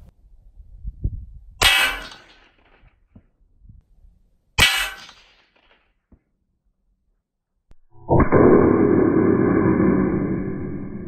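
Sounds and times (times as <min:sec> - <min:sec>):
bullets striking steel plate: 0:01.6 - 0:02.8, 0:04.6 - 0:05.9.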